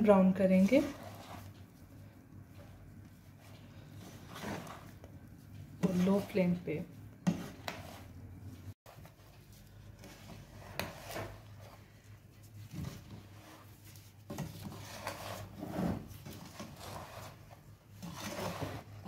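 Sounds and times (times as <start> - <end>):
spatula scraping frying pan: 0.6 - 1.6, 3.3 - 5.0, 7.2 - 8.2, 10.0 - 11.8, 12.8 - 19.0.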